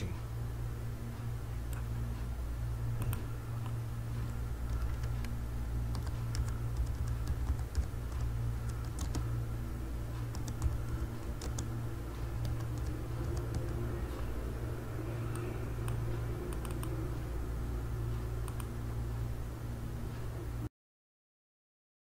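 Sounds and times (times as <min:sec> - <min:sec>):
steady low hum: 0:00.0 - 0:20.7
keyboard typing clicks: 0:04.7 - 0:09.3, 0:10.2 - 0:11.7, 0:12.4 - 0:13.8, 0:15.3 - 0:17.0, 0:18.4 - 0:18.7.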